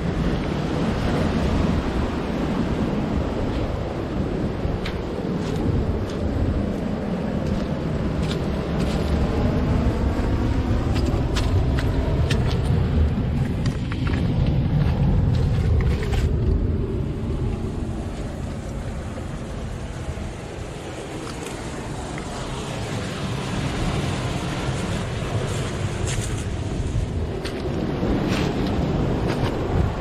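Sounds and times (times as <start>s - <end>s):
wind rumble on microphone: 0.0s - 30.0s
footsteps on pebbles: 4.8s - 9.5s, 10.8s - 16.4s
surf breaking on shore: 18.5s - 30.0s.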